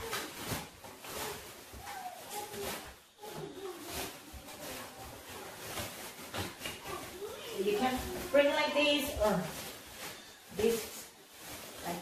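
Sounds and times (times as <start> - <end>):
fabric bag rustling: 0.0 - 12.0.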